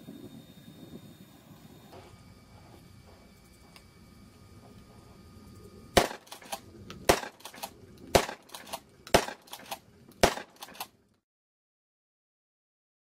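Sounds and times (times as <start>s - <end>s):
pump-action clacks: 6.0s - 10.9s
shotgun shots: 6.0s - 10.9s.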